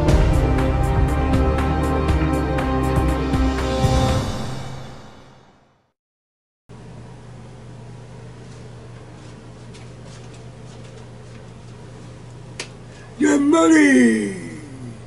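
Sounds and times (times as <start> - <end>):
low room hum: 6.7 - 15.0.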